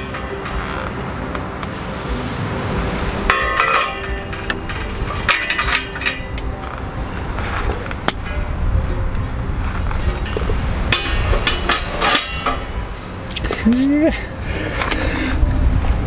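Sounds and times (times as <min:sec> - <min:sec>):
metal parts clinking: 0:03.3 - 0:06.8.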